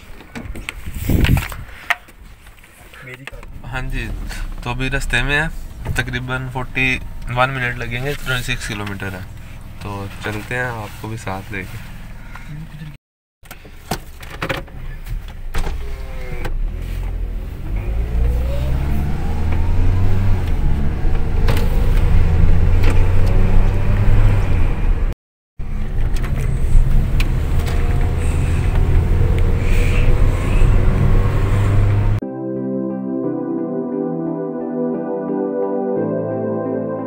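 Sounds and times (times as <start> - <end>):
road noise: 0.0 - 32.2
car engine accelerating: 3.4 - 10.5, 15.7 - 32.2.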